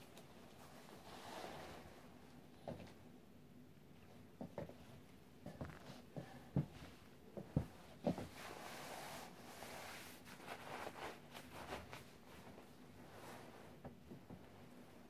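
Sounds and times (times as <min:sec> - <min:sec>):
nylon clothing rustling: 0:07.5 - 0:13.8.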